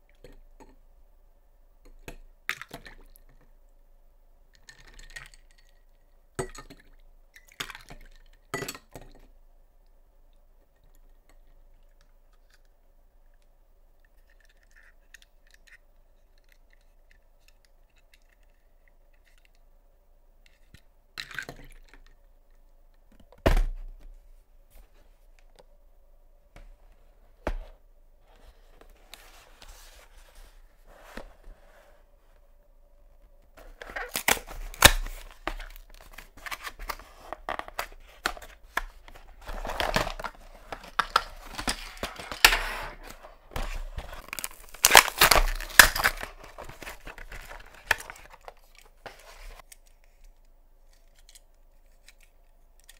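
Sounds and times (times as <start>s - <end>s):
cardboard box rustling: 33.6s - 48.5s.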